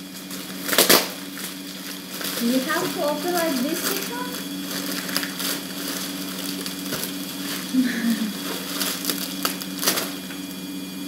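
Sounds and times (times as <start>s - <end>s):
plastic bag crinkling: 0.0s - 10.5s.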